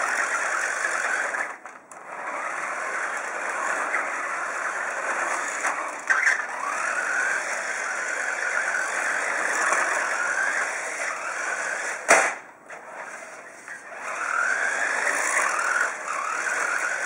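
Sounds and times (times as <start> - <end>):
toy truck electric motor whining: 0.0 - 12.1, 12.7 - 17.0
sharp knock: 12.1 - 12.5.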